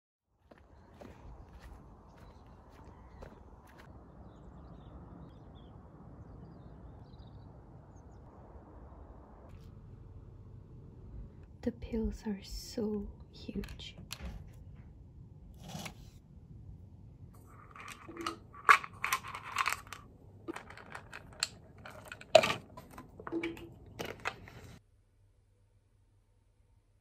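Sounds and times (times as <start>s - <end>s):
screw caps twisting and snapping: 17.4s - 24.8s
tablets rattling in bottle: 17.4s - 24.8s.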